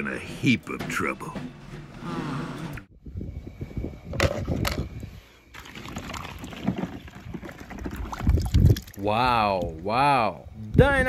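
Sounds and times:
water sloshing and splashing: 0:05.5 - 0:09.0.

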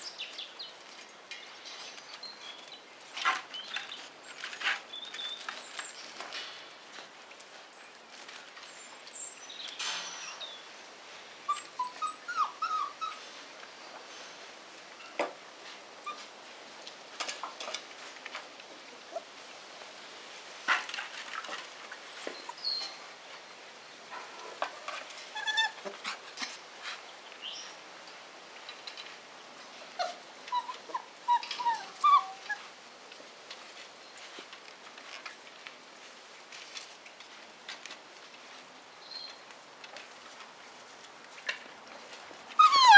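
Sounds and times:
puppies whimpering and yipping: 0:11.4 - 0:13.2, 0:16.0 - 0:16.3, 0:25.3 - 0:26.2, 0:29.6 - 0:32.7, 0:42.5 - 0:42.9.

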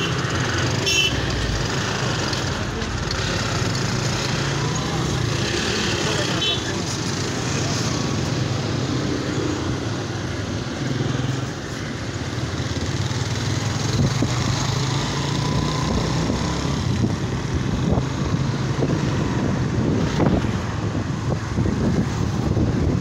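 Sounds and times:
wind noise on microphone: 0:13.7 - 0:23.0.

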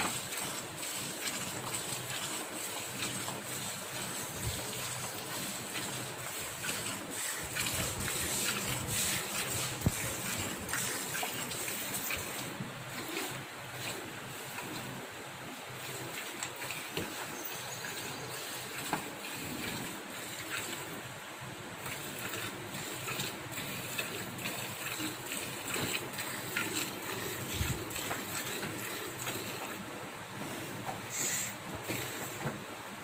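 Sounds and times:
milk squirting into steel bucket: 0:21.8 - 0:29.8.

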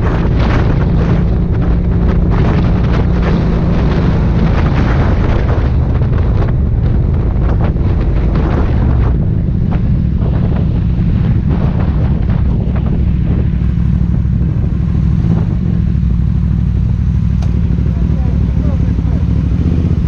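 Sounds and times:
motorcycle engine drone: 0:00.0 - 0:20.0
wind noise on microphone: 0:00.0 - 0:20.0.

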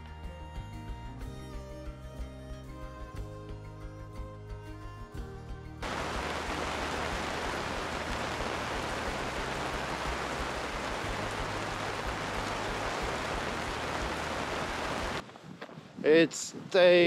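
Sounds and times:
background music: 0:00.0 - 0:15.2
rain and wind on microphone: 0:05.8 - 0:17.0.

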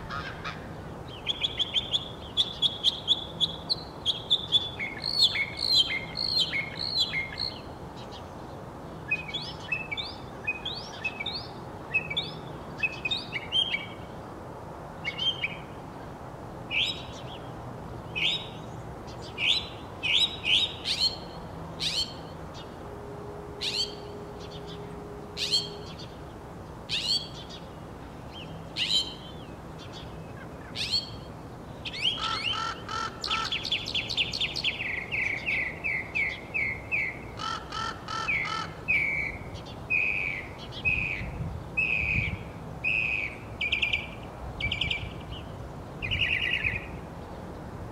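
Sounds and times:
mockingbird singing: 0:00.1 - 0:08.2, 0:18.1 - 0:22.8, 0:23.6 - 0:26.2, 0:26.9 - 0:27.7, 0:28.3 - 0:46.9.

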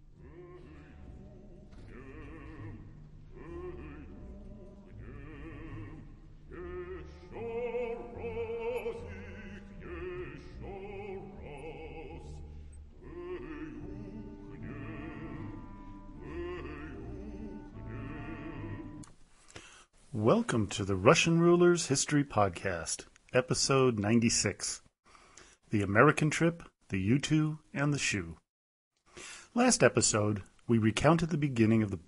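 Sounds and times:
low musical accompaniment: 0:00.0 - 0:19.0
operatic singing with vibrato: 0:00.0 - 0:19.1.

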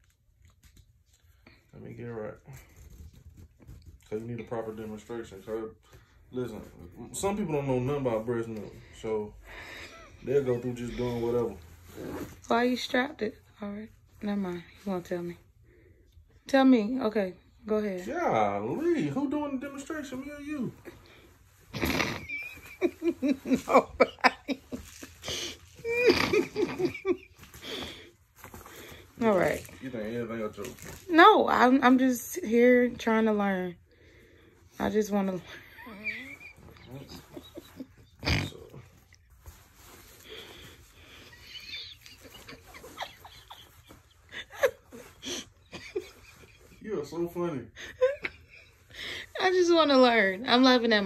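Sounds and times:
person laughing: 0:21.7 - 0:27.8, 0:35.7 - 0:38.8, 0:41.1 - 0:46.8.

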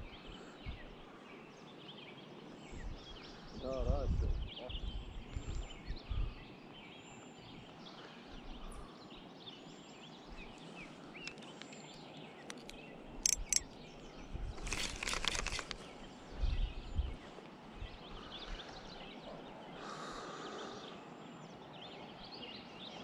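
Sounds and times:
birds chirping: 0:00.0 - 0:23.0
sharp clicks: 0:11.2 - 0:13.8
rapid clicking or rattling: 0:12.6 - 0:13.6, 0:14.6 - 0:15.8.

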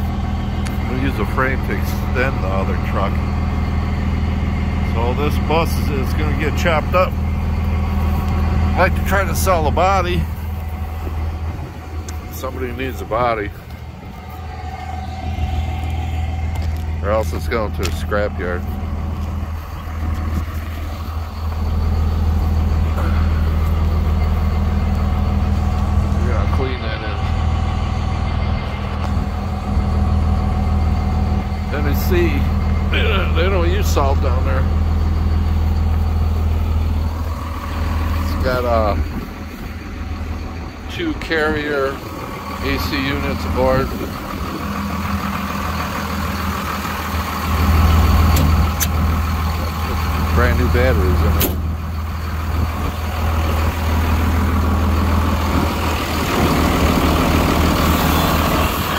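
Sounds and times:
truck engine idling: 0:00.0 - 0:58.9.

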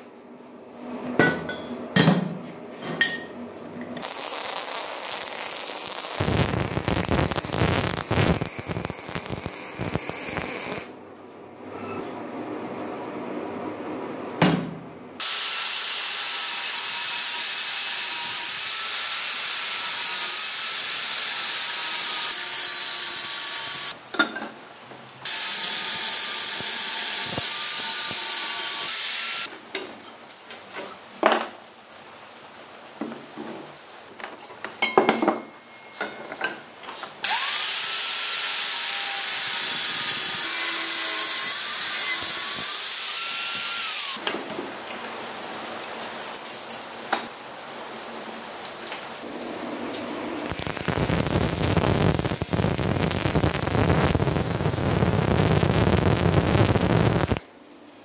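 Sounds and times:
angle grinder cutting steel: 0:04.0 - 0:10.9, 0:15.2 - 0:24.0, 0:25.3 - 0:29.5, 0:37.2 - 0:44.2, 0:50.5 - 0:57.4.

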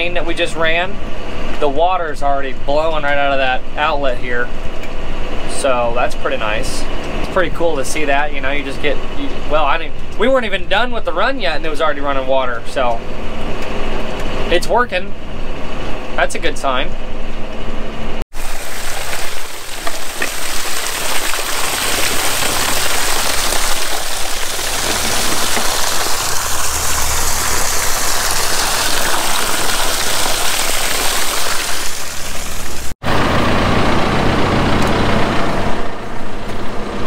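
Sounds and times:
engine running low: 0:00.0 - 0:37.0
water gushing and splashing: 0:18.3 - 0:35.9
backhoe engine running: 0:21.6 - 0:29.9, 0:33.0 - 0:37.0.

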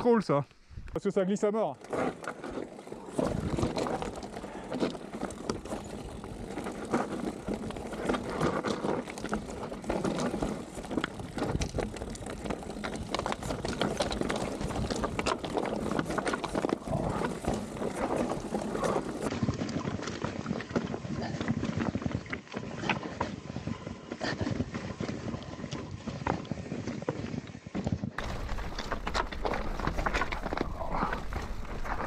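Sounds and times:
tyres crunching over stones: 0:00.8 - 0:32.0
bike clattering: 0:28.2 - 0:32.0.

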